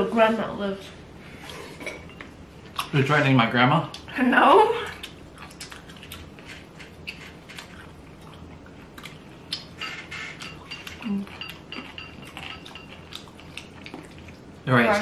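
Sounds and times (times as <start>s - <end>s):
chewing and mouth sounds: 2.6s - 3.0s, 4.8s - 14.6s.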